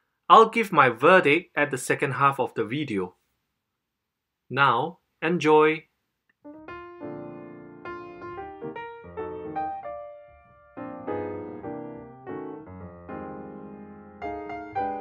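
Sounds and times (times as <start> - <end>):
piano music: 6.4 - 15.0.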